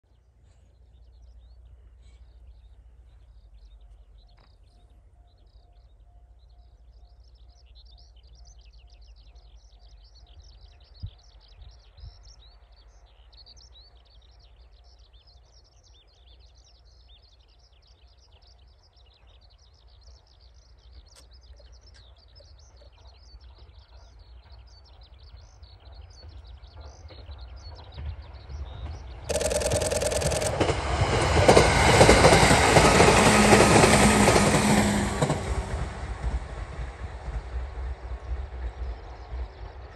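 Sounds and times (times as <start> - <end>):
electric train approaching: 29.1 - 39.9
small birds chirping: 29.3 - 30.5
faint repeating tone: 29.3 - 30.7.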